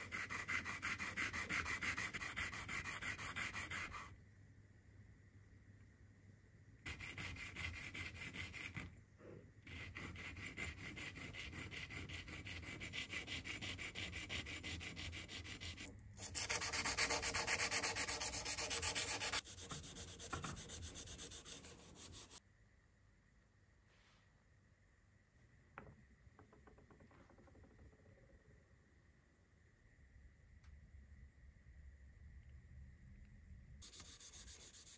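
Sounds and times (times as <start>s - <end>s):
brass rubbed on abrasive paper: 9.7s - 22.4s, 33.8s - 34.9s.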